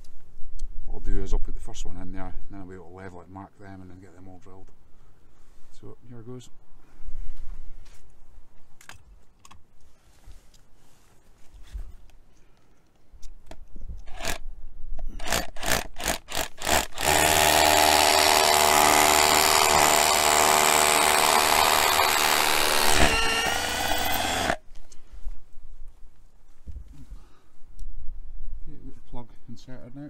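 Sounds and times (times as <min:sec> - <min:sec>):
hammer drill drilling masonry: 0:15.2 - 0:24.6.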